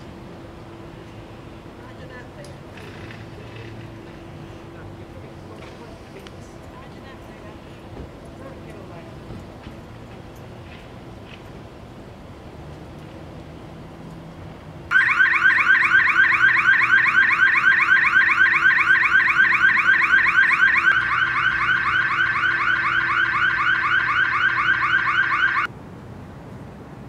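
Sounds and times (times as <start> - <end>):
electronic alarm siren chirps: 14.9 - 25.7.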